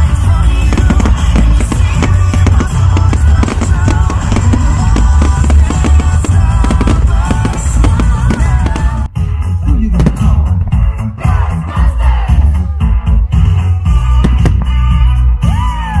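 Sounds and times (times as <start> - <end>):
fireworks banging: 0.0 - 9.1
loud music with heavy drums: 0.0 - 16.0.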